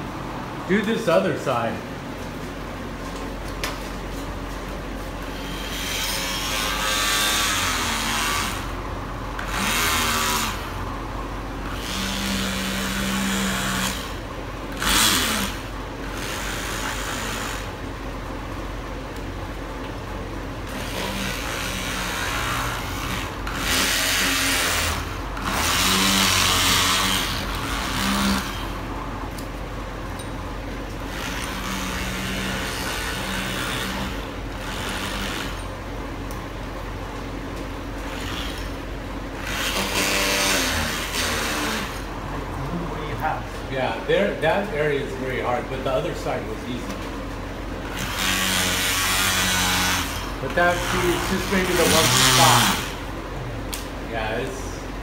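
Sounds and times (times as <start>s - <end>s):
oscillating multi-tool buzzing: 5.3s - 10.9s, 11.6s - 17.8s, 20.6s - 28.9s, 31.0s - 35.8s, 38.0s - 42.1s, 47.8s - 53.1s.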